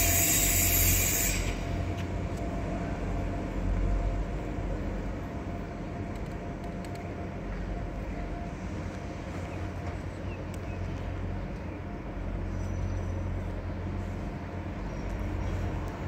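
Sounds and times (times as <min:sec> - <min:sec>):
loud hiss: 0:00.0 - 0:01.7
distant diesel locomotive rumble: 0:00.0 - 0:16.0.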